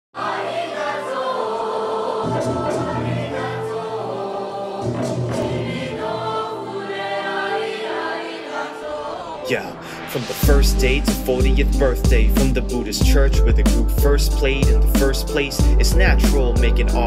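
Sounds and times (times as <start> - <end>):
children's choir singing: 0.2 - 10.4
hip-hop beat: 2.2 - 3.7, 9.4 - 17.0
bass and drum hits: 10.4 - 17.0.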